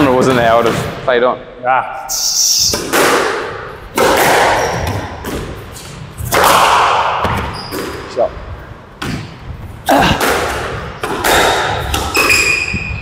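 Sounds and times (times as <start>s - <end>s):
high squeaks: 2.0s - 2.8s, 7.3s - 8.2s, 11.9s - 13.0s
racket hitting squash ball: 2.6s - 8.2s, 8.9s - 13.0s.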